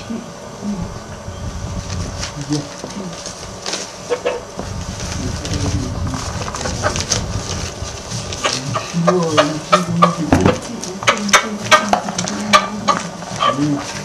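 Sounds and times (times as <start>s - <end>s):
low drawn-out sound: 4.6s - 11.0s.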